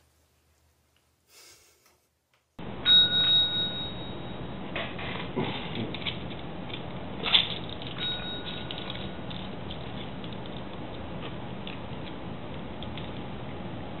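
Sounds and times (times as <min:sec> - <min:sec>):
service bell ding: 0:02.8 - 0:04.5, 0:08.0 - 0:08.9
light taps on service bell: 0:02.9 - 0:04.4, 0:08.0 - 0:08.7.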